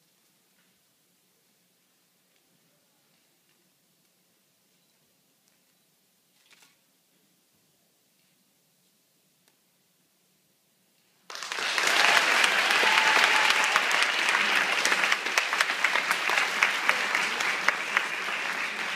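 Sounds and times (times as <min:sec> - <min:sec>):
audience applause: 0:11.3 - 0:18.9.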